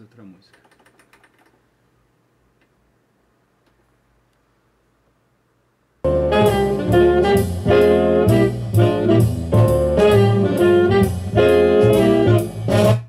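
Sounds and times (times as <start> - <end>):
music through loudspeaker: 6.1 - 13.0.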